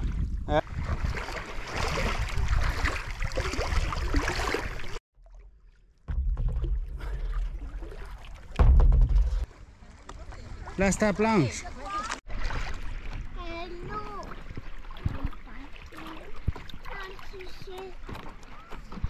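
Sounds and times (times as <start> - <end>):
wind rumbling on microphone: 0.0 - 4.9
water sloshing around paddleboard: 0.0 - 19.0.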